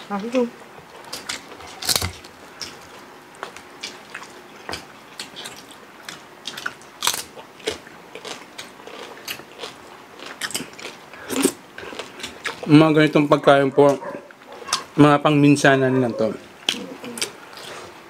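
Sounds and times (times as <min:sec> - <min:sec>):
crunching crispy food: 0:00.9 - 0:12.8.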